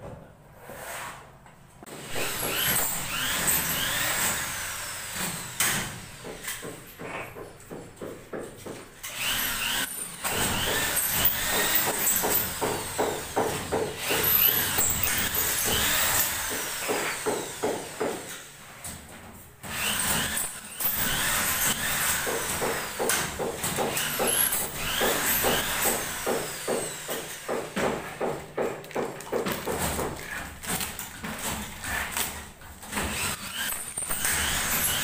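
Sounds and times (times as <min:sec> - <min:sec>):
electric drill driving screws: 0:02.0 - 0:06.7, 0:09.0 - 0:18.4, 0:19.6 - 0:27.6, 0:32.9 - 0:35.0.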